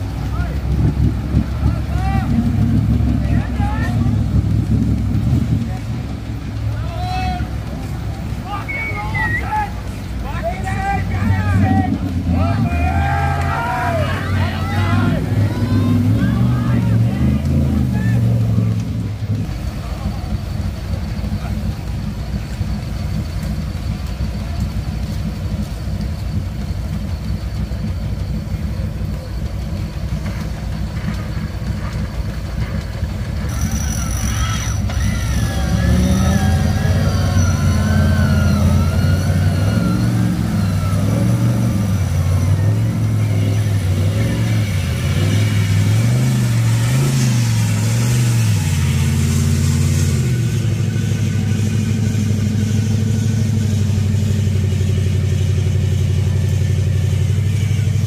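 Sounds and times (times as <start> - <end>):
engine idling and revving: 0.0 - 58.0.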